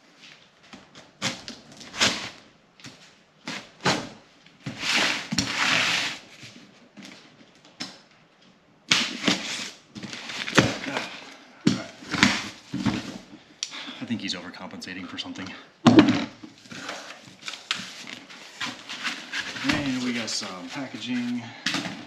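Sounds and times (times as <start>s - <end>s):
knife ripping through cardboard: 1.2s - 2.4s, 4.7s - 6.2s.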